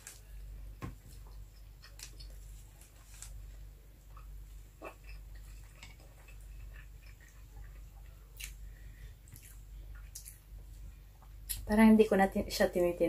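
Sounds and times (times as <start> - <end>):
steady low hum: 0.0 - 13.0
close-up chewing with mouth clicks: 4.0 - 10.5.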